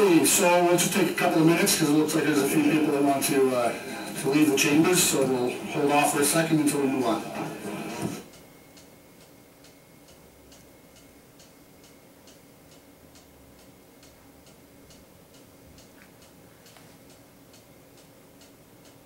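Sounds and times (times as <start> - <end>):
low steady hum: 0.0 - 19.0
faint ticking: 8.3 - 19.0.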